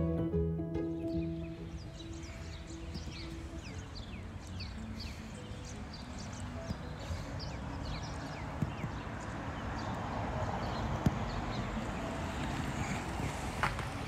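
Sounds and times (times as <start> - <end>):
held music note: 0.0 - 2.6
steady background noise: 0.0 - 14.0
small birds chirping: 0.8 - 13.6.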